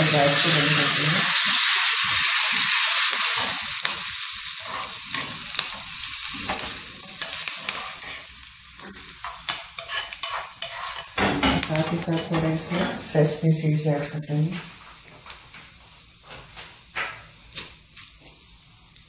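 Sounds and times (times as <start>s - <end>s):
spices sizzling in hot oil: 0.0s - 12.2s
metal spoon scraping pan: 6.5s - 13.0s.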